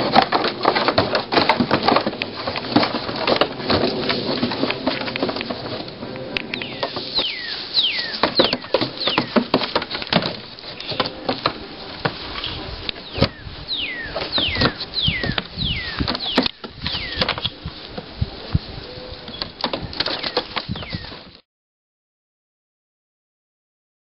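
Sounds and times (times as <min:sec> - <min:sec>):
birds whistling: 0:06.4 - 0:09.5, 0:12.4 - 0:17.7, 0:19.3 - 0:21.2.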